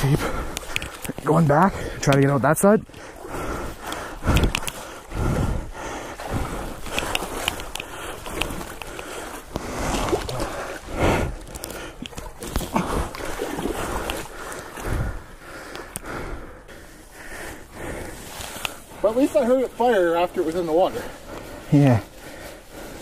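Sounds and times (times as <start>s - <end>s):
water splashing and sloshing: 0.0s - 23.0s.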